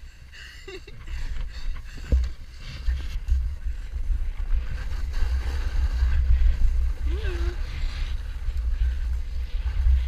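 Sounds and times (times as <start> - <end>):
wind buffeting microphone: 0.0 - 10.0
snowboard hissing over snow: 4.6 - 10.0.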